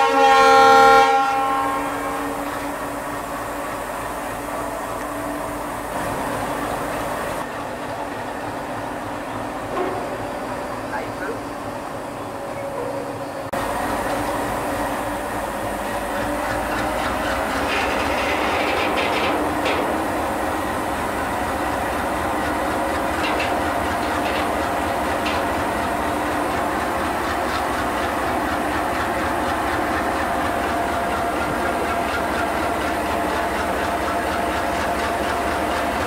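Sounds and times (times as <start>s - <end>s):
diesel locomotive droning: 0.0s - 36.0s
wheel clicks over rail joints: 16.0s - 36.0s.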